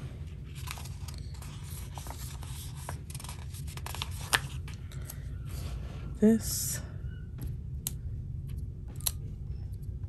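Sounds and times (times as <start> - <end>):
steady low hum: 0.0 - 10.0
paper sticker rustling: 0.5 - 5.2.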